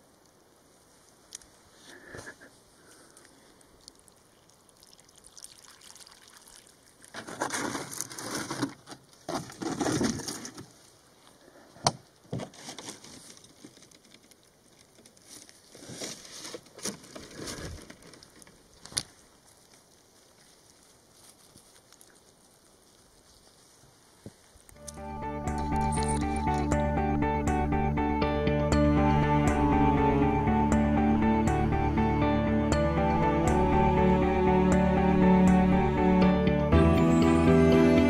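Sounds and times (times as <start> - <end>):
water splashing and gurgling: 3.8 - 7.2
hands rustling in gravel: 6.6 - 11.4, 12.5 - 24.9.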